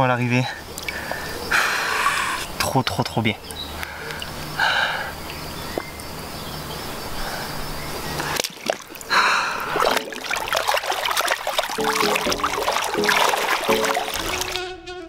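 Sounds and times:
water splashing and sloshing: 8.1 - 14.6.

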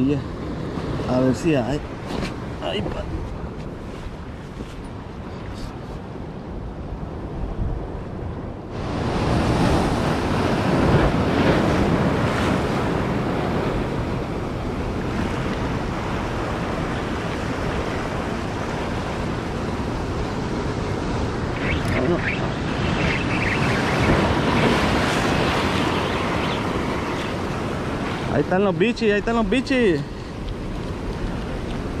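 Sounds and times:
surf breaking over rocks: 8.8 - 32.0.

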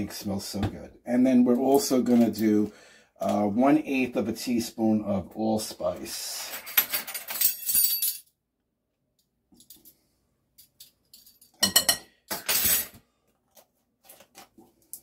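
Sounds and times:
metal spoon clinking on glass jar: 10.8 - 12.8.

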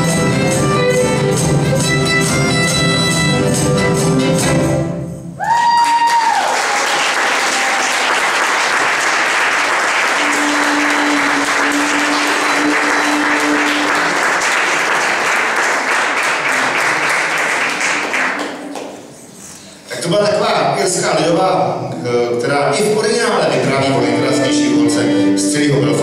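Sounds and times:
audience applauding: 5.4 - 19.2.

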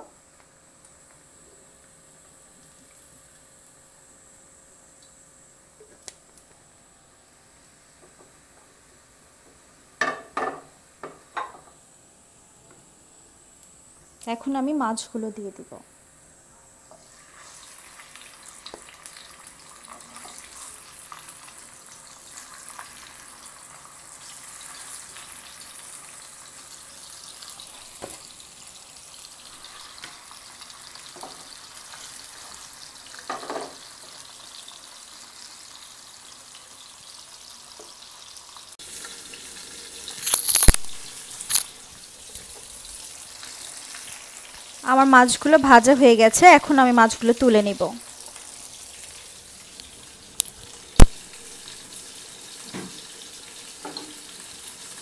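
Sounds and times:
fish sizzling in hot oil: 0.0 - 12.4, 13.1 - 55.0
loud sharp oil pops: 51.0 - 51.3.

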